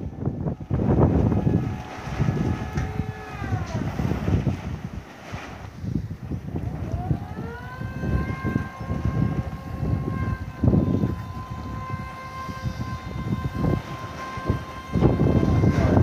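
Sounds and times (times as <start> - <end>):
electric motor whining: 0.5 - 4.5, 6.6 - 16.0.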